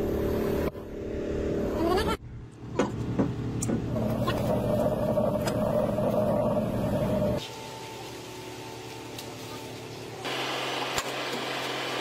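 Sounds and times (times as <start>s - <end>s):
heavy vehicle engine running: 3.4s - 7.4s.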